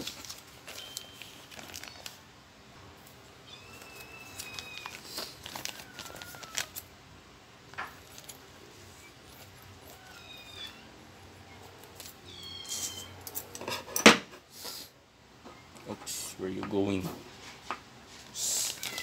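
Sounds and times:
plastic crinkling: 0.0s - 2.2s, 3.0s - 6.9s, 7.7s - 10.9s, 18.2s - 19.0s.

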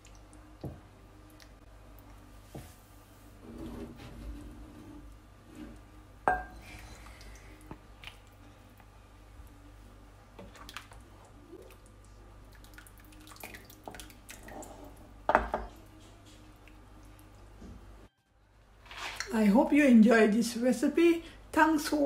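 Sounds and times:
broth splashing and dripping: 10.4s - 14.8s.

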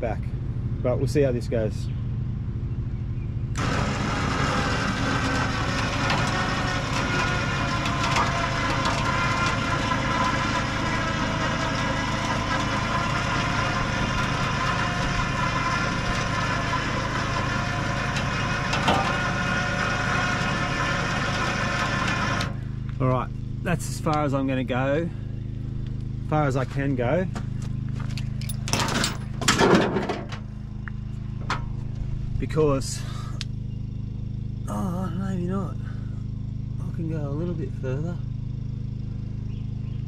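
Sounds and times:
vehicle engine idling: 0.0s - 40.0s
electric winch running: 3.6s - 22.8s
metal frame clanks: 28.1s - 30.5s.

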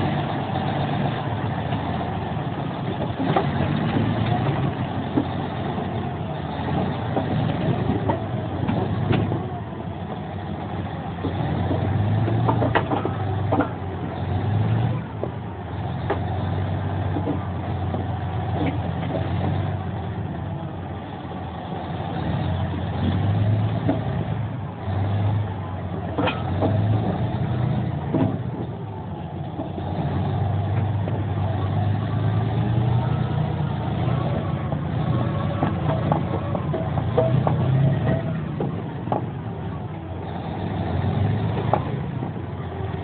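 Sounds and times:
bulldozer diesel engine: 0.0s - 43.0s
track chains clanking: 21.1s - 43.0s.

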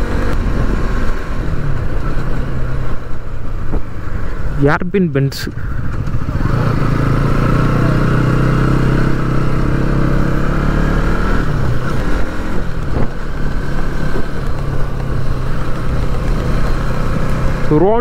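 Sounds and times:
motorcycle engine running: 5.5s - 18.0s.

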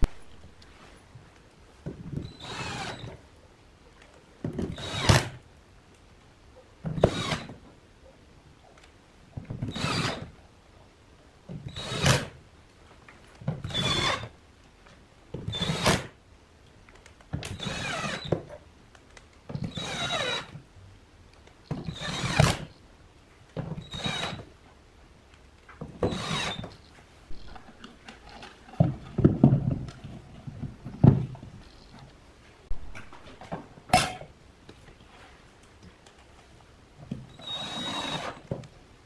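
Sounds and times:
cordless drill driving screws: 2.3s - 3.2s, 4.7s - 5.4s, 7.0s - 7.6s, 9.7s - 10.3s, 11.7s - 12.3s, 13.6s - 14.3s, 15.5s - 16.1s, 17.5s - 18.4s, 19.6s - 20.6s, 21.9s - 22.7s, 23.8s - 24.5s, 26.0s - 26.8s, 37.3s - 38.5s.

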